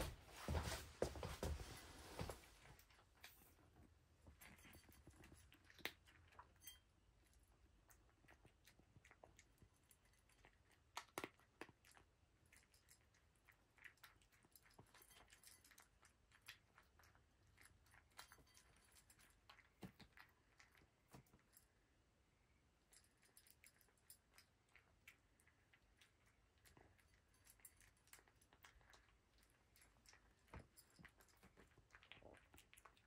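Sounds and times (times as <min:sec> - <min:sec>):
cat crunching dry kibble: 0:02.6 - 0:06.6, 0:07.2 - 0:21.6, 0:22.9 - 0:33.0.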